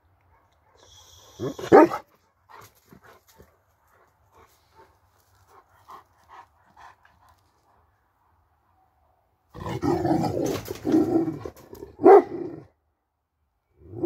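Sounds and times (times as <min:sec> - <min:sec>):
dog panting: 0:02.5 - 0:07.8.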